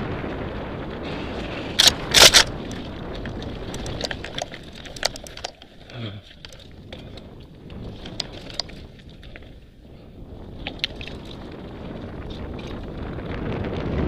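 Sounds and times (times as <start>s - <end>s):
bike rattling: 0.0s - 14.0s
wind and tyre noise: 0.0s - 14.0s
ticks and clicks: 1.8s - 7.3s.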